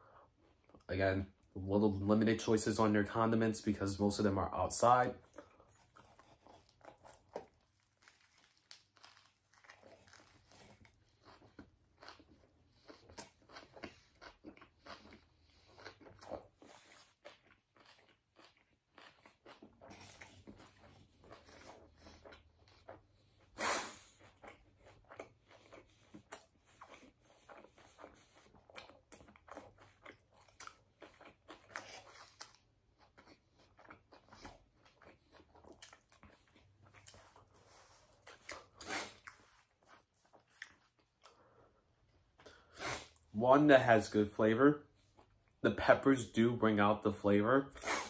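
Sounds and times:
person chewing and crunching: 4.0s - 43.3s.

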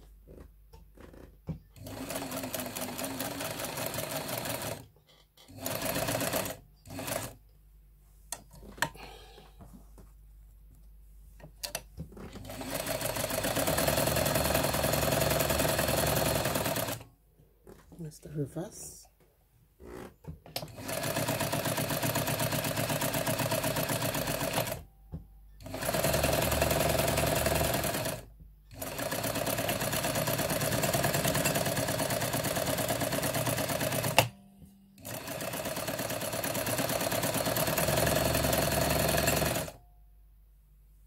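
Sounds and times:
sewing machine running: 1.8s - 4.8s, 5.5s - 7.4s, 12.3s - 17.0s, 20.6s - 24.8s, 25.6s - 34.3s, 35.0s - 39.8s.

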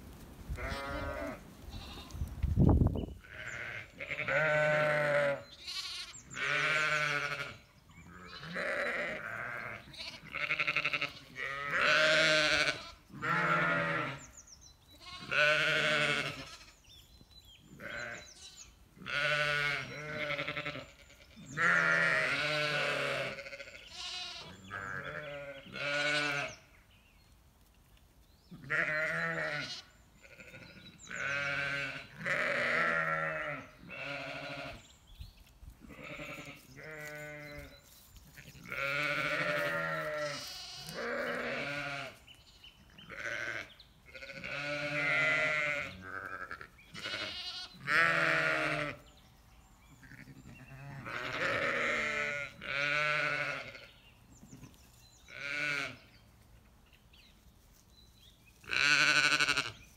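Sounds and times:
sheep bleating: 0.6s - 2.2s, 3.2s - 14.3s, 15.0s - 16.8s, 17.8s - 26.6s, 28.6s - 34.8s, 35.8s - 42.2s, 43.0s - 49.0s, 49.9s - 54.0s, 55.3s - 56.0s, 58.7s - 59.8s.

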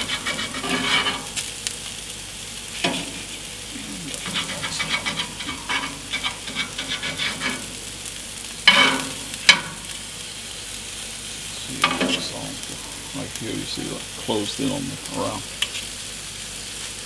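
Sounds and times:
meat sizzling in a frying pan: 0.0s - 17.0s
metal tongs clicking and scraping: 4.2s - 7.6s.

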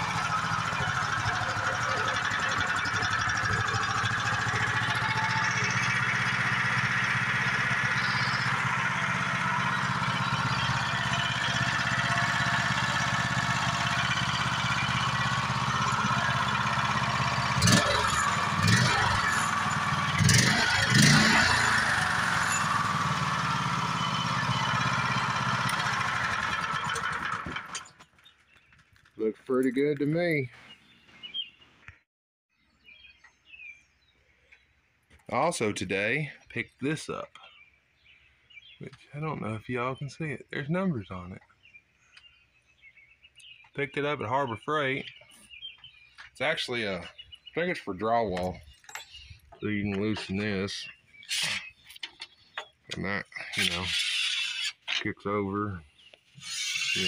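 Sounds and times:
single-cylinder engine running: 0.0s - 28.0s.

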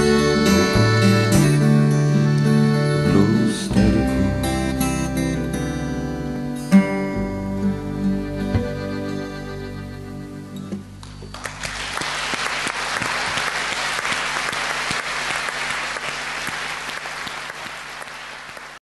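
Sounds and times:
acoustic guitar chord: 0.0s - 11.2s
audience applauding: 11.0s - 18.8s.

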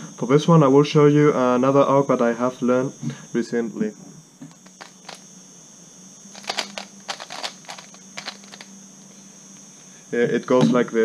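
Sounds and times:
plastic puzzle clicking turns: 6.4s - 8.6s.

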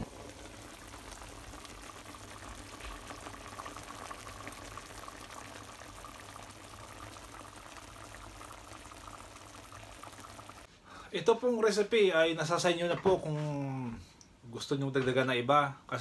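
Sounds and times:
broth bubbling in a frying pan: 0.0s - 10.7s.

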